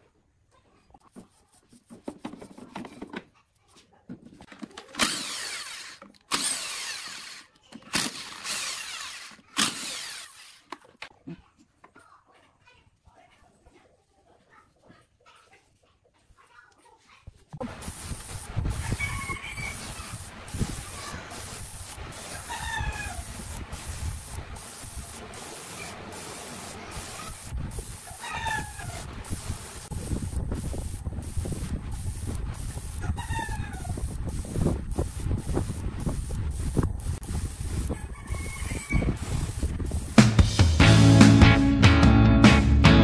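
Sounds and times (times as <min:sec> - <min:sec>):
steady hiss: 0:17.6 - 0:40.5
rooster crowing: 0:18.8 - 0:19.9, 0:22.3 - 0:23.3, 0:28.2 - 0:29.0, 0:37.9 - 0:39.2.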